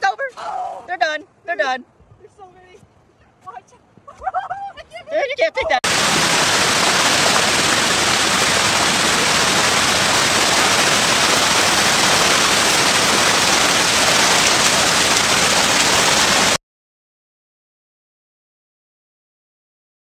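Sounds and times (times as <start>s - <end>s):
steady rushing hiss: 5.8s - 16.6s.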